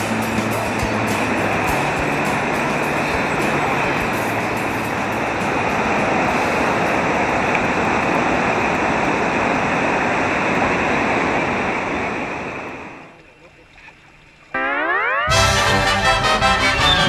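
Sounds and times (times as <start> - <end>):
river rapids rushing: 0.0 - 13.1.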